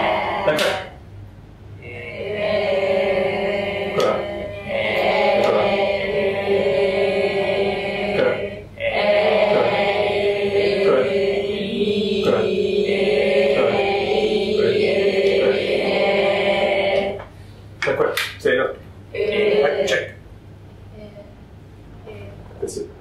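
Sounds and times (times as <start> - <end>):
students chanting a held vowel: 0.0 - 1.0, 1.8 - 17.3, 19.1 - 20.2.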